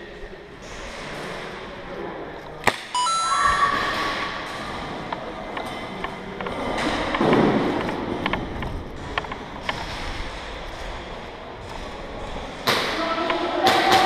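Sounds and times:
steady tone: 0:03.0 - 0:05.2.

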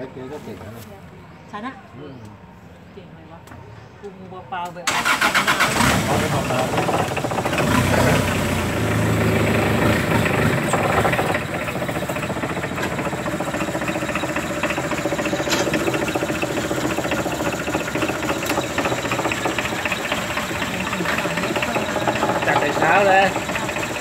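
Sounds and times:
small boat engine knocking: 0:06.4 - 0:24.0.

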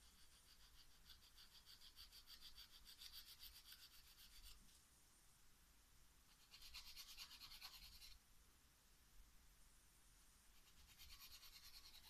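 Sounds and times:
nail file rubbing fingernail: 0:00.0 - 0:04.6, 0:06.3 - 0:08.2, 0:10.6 - 0:12.0.

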